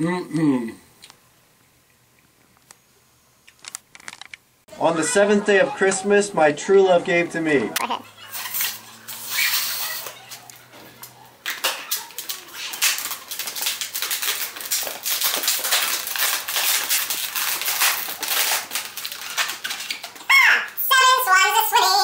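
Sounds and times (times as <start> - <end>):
plastic crinkling and crackling: 3.5 - 4.4, 8.3 - 20.8.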